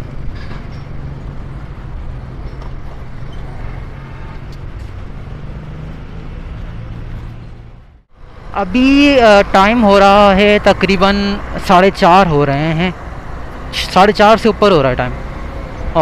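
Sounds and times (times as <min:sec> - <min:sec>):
road and wind noise: 0:00.0 - 0:16.0.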